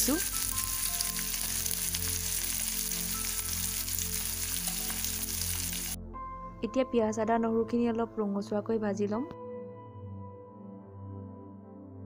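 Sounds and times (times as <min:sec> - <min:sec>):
onions sizzling in hot oil: 0:00.0 - 0:06.0.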